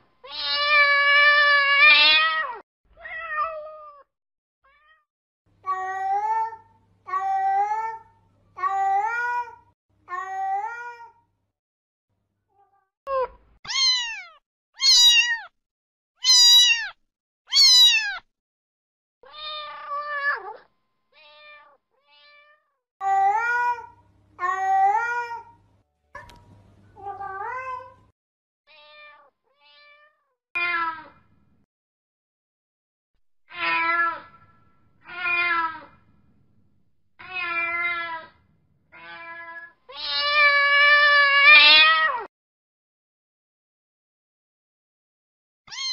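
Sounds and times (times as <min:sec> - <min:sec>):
cat meowing: 0:00.2 - 0:04.1, 0:04.7 - 0:07.7, 0:13.1 - 0:15.5, 0:16.2 - 0:18.2, 0:19.2 - 0:25.5, 0:28.7 - 0:31.2, 0:33.5 - 0:34.4, 0:35.0 - 0:36.0, 0:37.2 - 0:42.3, 0:45.7 - 0:45.9.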